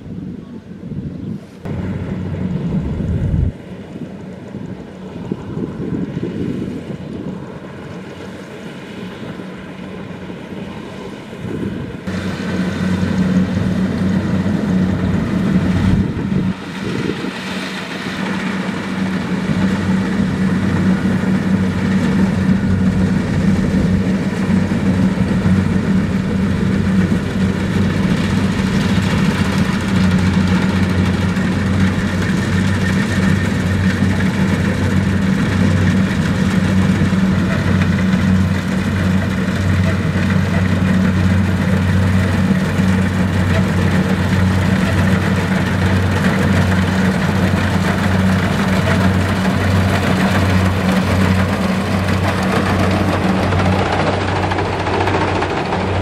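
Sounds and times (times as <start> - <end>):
combine harvester diesel engine: 0.0 - 56.0.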